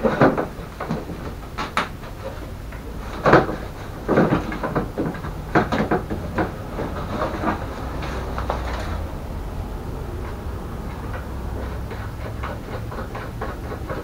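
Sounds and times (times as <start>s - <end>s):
plastic shroud clunking and rattling: 0.0s - 9.1s.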